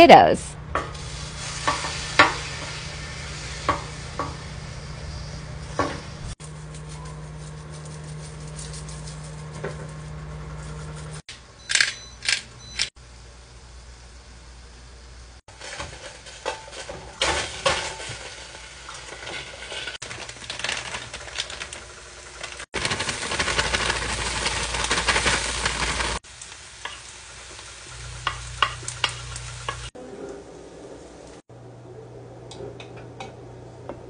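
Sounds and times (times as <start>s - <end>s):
steak sizzling on griddle: 0.9s - 5.3s, 21.8s - 30.0s.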